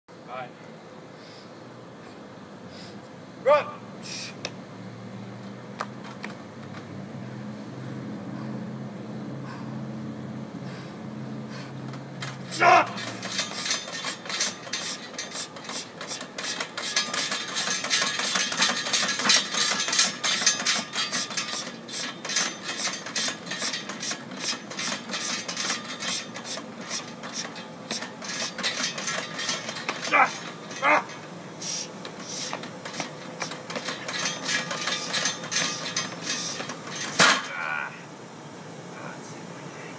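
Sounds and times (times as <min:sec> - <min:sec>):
person shouting: 0:03.4 - 0:03.8, 0:12.5 - 0:13.0, 0:30.1 - 0:31.1, 0:37.4 - 0:38.1
chains and weight plates clanking: 0:11.8 - 0:37.9.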